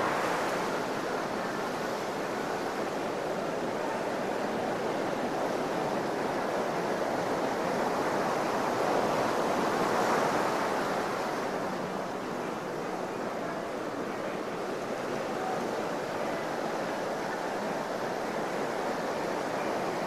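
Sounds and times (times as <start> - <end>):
ocean surf on beach: 0.0 - 20.0.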